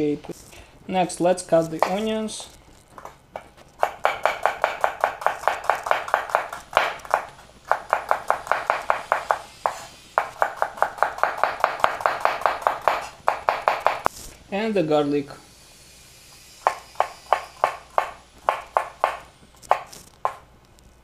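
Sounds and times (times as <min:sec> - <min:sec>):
knife chopping on wooden board: 0:01.8 - 0:02.1, 0:03.0 - 0:14.0, 0:16.7 - 0:20.4.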